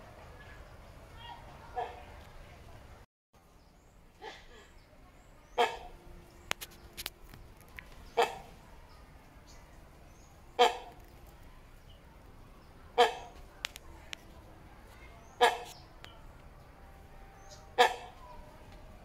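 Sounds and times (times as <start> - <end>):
hornbill calling: 5.5 - 7.0, 8.0 - 8.6, 10.2 - 11.1, 12.9 - 13.5, 15.2 - 15.9, 17.2 - 18.5.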